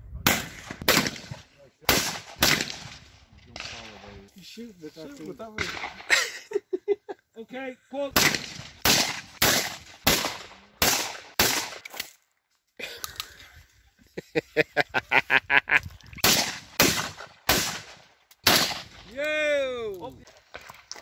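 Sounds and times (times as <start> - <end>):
shotgun shots: 0.2 - 4.1, 5.6 - 6.1, 8.1 - 12.1, 16.2 - 19.1.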